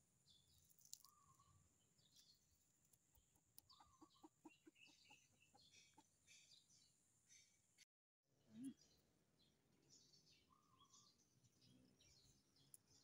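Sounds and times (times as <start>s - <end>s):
small birds chirping: 0.0s - 7.8s, 8.5s - 13.0s
chicken clucking: 3.6s - 6.3s.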